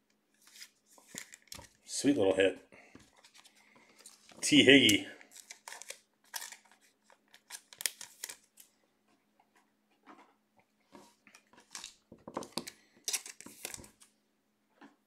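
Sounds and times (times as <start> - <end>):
faint electrical hum: 0.0 - 15.0
cards and wrappers rustling: 0.4 - 1.8, 3.0 - 8.7, 11.0 - 14.1.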